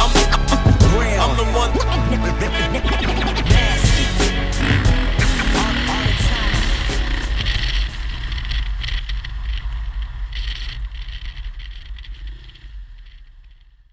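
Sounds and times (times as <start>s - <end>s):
motorcycle engine surging: 0.0s - 13.4s
wind noise: 3.2s - 13.3s.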